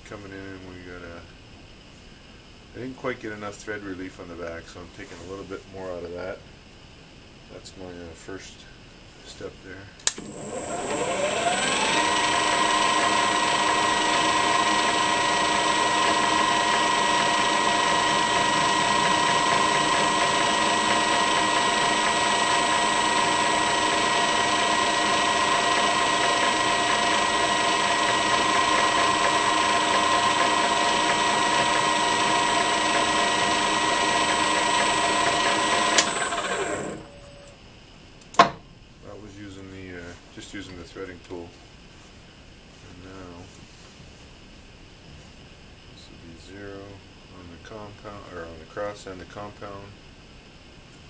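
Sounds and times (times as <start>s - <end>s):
metal lathe whining: 10.1s - 37.5s.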